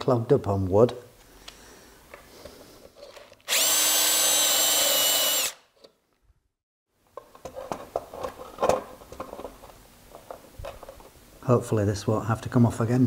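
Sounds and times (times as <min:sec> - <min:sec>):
cordless drill boring into plastic: 0:03.4 - 0:05.7.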